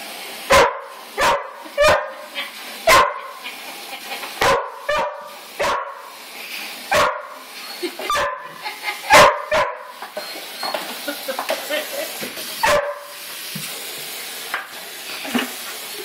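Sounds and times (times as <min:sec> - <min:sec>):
water running into plastic bucket: 0:00.0 - 0:16.0
dog barking: 0:00.5 - 0:02.3, 0:02.9 - 0:03.4, 0:04.4 - 0:06.1, 0:06.9 - 0:07.4, 0:08.1 - 0:09.9, 0:12.6 - 0:13.1.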